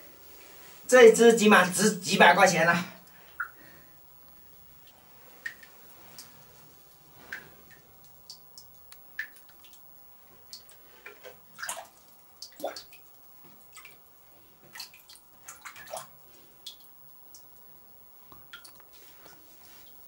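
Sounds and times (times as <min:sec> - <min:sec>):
water splashes and drips: 0:04.8 - 0:20.0.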